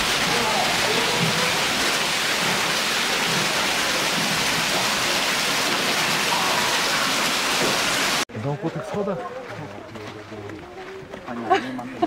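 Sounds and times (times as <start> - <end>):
small waterfall splashing on rocks: 0.0 - 8.3.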